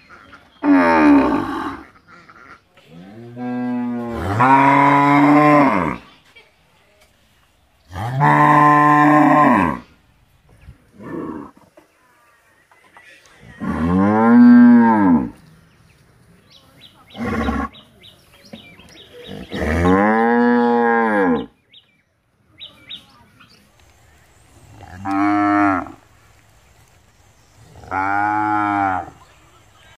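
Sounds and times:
cows mooing: 3.0s - 6.0s, 8.0s - 9.9s, 13.6s - 15.4s, 19.2s - 21.5s, 24.8s - 26.0s, 27.8s - 29.2s.

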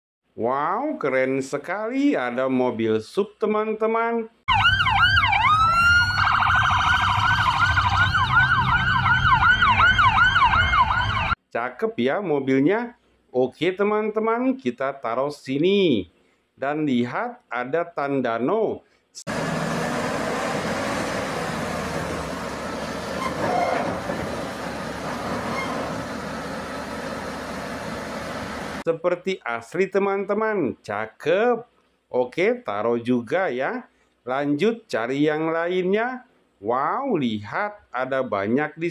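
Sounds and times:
police sirens wailing and yelping: 4.5s - 11.4s, 22.0s - 27.5s
low engine rumble: 19.3s - 28.8s
short squeal: 23.0s - 26.1s.

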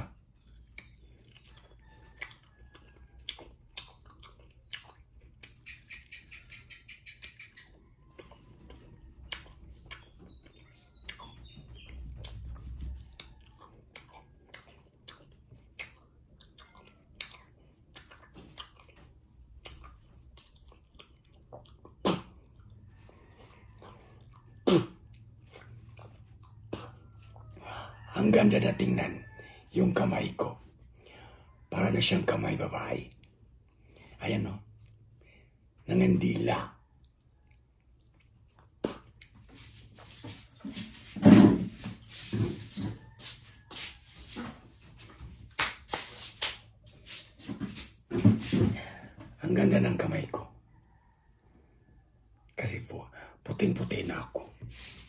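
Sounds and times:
chewing crunchy fruit: 0.0s - 29.1s, 29.8s - 50.4s.

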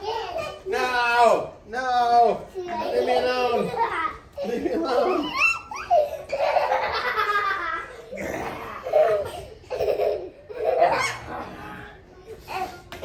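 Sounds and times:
young child laughing: 2.7s - 11.4s.

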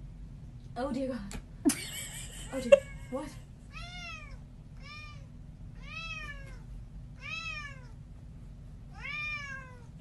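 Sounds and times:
cat meowing: 3.7s - 8.0s, 8.9s - 10.0s.

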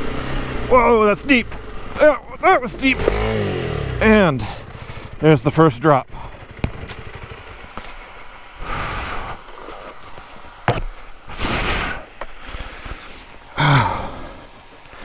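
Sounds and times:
motorcycle engine at low revs: 0.0s - 15.0s
sharp knocks: 6.6s - 7.2s, 10.6s - 11.0s.

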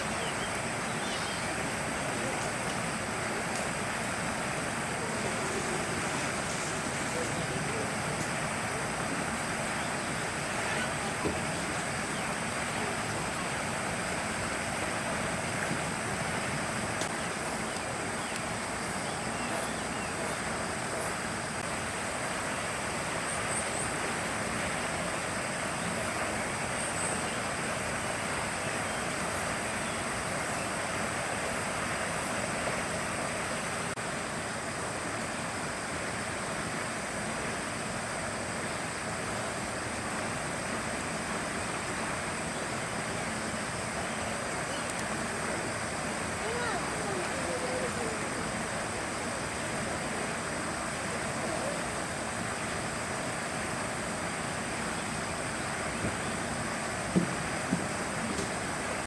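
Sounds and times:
faint high chirps: 0.0s - 1.6s
rushing hiss: 0.0s - 59.0s.

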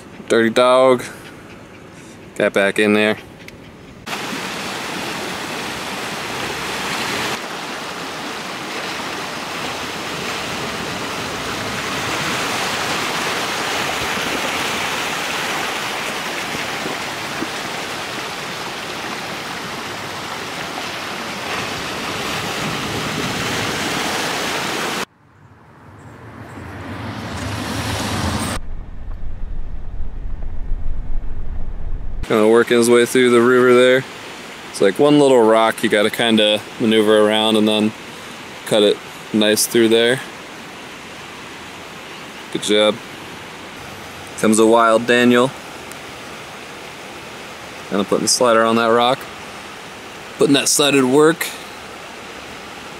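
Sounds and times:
flowing river water: 0.0s - 25.1s, 32.2s - 52.9s
low engine rumble: 25.1s - 32.3s.

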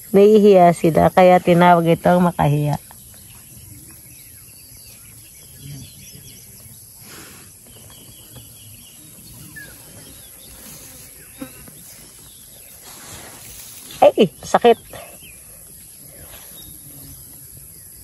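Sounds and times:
faint bird chirps: 2.3s - 18.0s
soft brush of noise: 9.4s - 14.2s.

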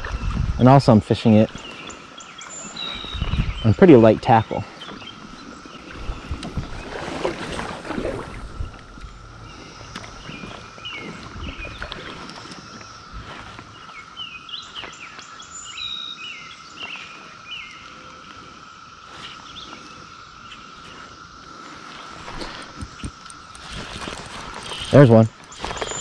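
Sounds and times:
high insect drone: 0.0s - 26.0s
birds chirping and singing: 1.3s - 7.1s, 8.5s - 17.9s, 22.4s - 26.0s.

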